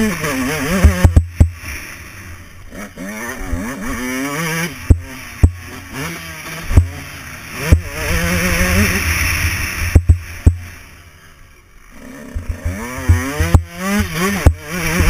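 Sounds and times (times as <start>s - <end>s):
dirt bike engine revving: 0.0s - 15.0s
sharp knocks over bumps: 0.7s - 1.6s, 4.9s - 5.7s, 6.7s - 7.0s, 9.9s - 10.7s, 12.4s - 15.0s.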